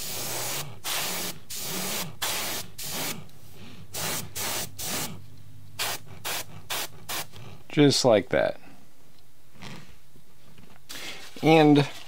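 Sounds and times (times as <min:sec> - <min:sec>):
airbrush spraying hisses: 0:00.0 - 0:03.3, 0:03.9 - 0:05.2, 0:05.8 - 0:07.3
steady low hum: 0:00.1 - 0:10.9.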